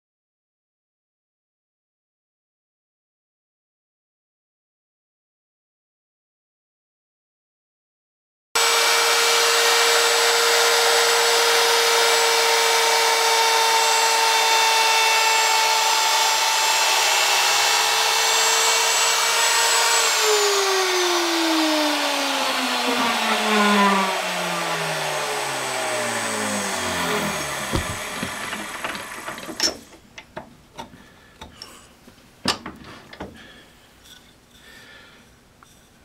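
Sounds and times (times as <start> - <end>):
router motor whining: 8.6 - 29.9.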